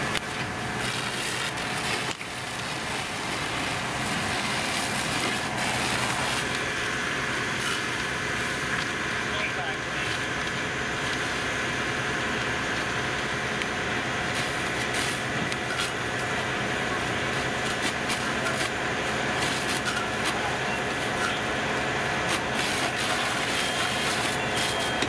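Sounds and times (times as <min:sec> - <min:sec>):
diesel engine droning: 0:00.0 - 0:25.0
sharp crackles and pops: 0:00.0 - 0:25.0.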